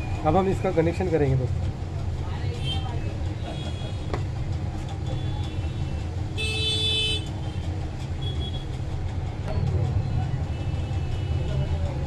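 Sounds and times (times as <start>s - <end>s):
road traffic rumble: 0.0s - 12.0s
vehicle horn toot: 6.4s - 7.3s.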